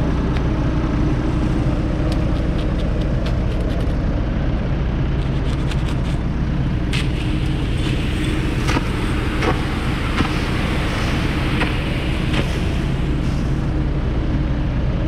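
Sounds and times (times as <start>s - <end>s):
diesel engines idling: 0.0s - 15.0s
granular fertiliser pouring and rattling: 0.0s - 15.0s.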